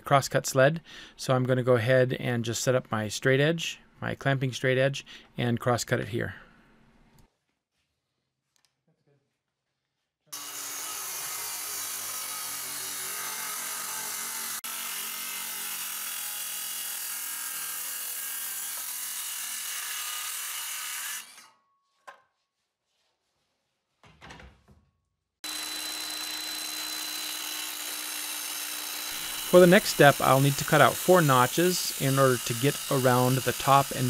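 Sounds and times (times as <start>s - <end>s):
power tool humming: 10.4s - 21.5s, 25.4s - 34.0s
circular saw cutting plywood: 10.4s - 21.6s, 25.4s - 34.0s.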